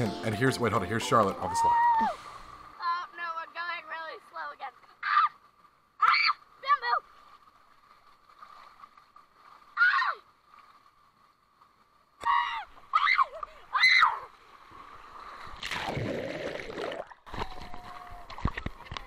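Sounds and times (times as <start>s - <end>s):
girl shouting excitedly: 2.8s - 5.4s, 6.0s - 7.1s, 9.8s - 10.3s, 12.2s - 14.3s
splash into pool: 15.2s - 18.9s.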